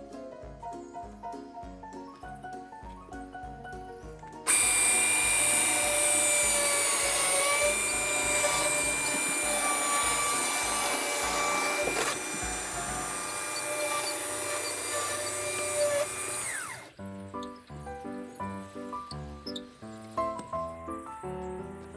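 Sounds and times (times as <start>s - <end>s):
background music: 0.0s - 21.9s
chainsaw cutting a log: 4.5s - 17.0s.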